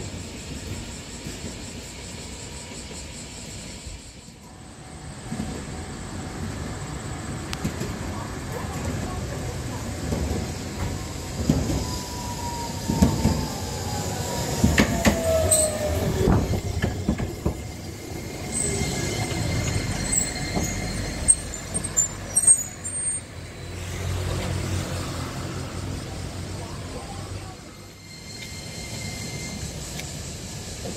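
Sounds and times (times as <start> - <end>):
wheel and brake squeals: 10.3 - 25.2, 26.6 - 30.9
tram whine falling in pitch: 10.7 - 24.4
tram wheels knocking over rail joints: 14.6 - 20.9.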